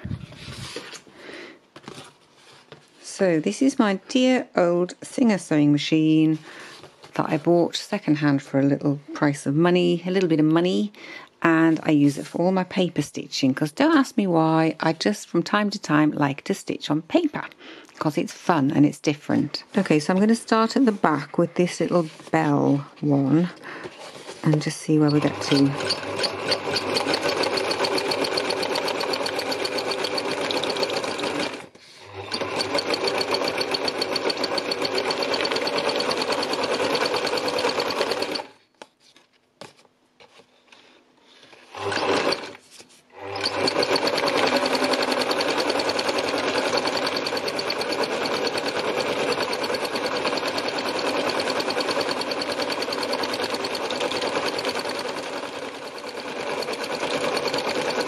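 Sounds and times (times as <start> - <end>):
sewing machine running: 24.2 - 38.6, 41.7 - 42.6, 43.2 - 58.0.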